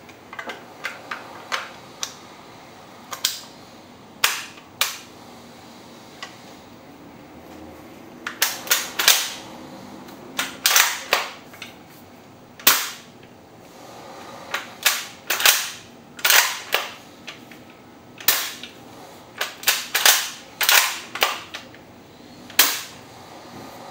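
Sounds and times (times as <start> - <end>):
airsoft rifle gas shots: 12.6 - 13.1, 14.5 - 17.0, 19.4 - 21.5, 22.6 - 23.0.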